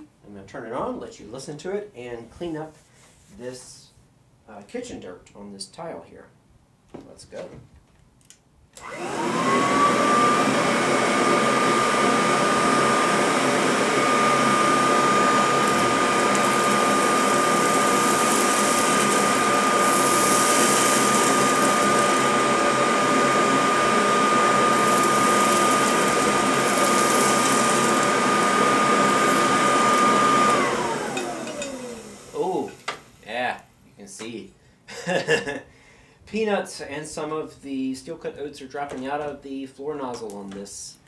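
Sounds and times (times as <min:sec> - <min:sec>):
vacuum cleaner motor whining: 0:08.8 - 0:33.2
hose sucking dirt off tile: 0:09.0 - 0:32.4.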